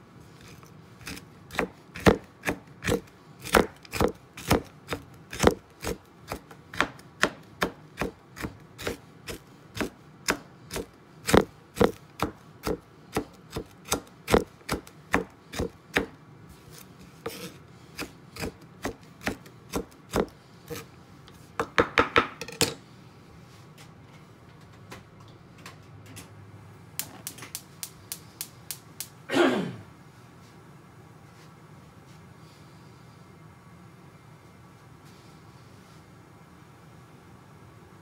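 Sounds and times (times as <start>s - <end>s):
knife chopping on wooden board: 1.0s - 16.2s, 17.2s - 20.8s.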